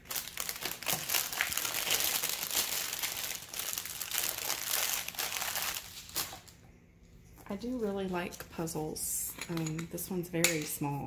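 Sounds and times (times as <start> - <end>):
plastic packaging crinkling: 0.0 - 6.6.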